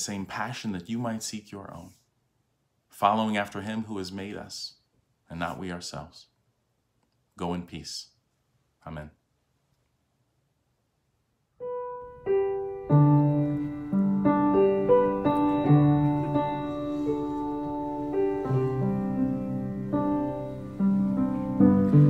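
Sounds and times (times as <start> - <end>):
piano notes and chords: 11.6 - 22.0.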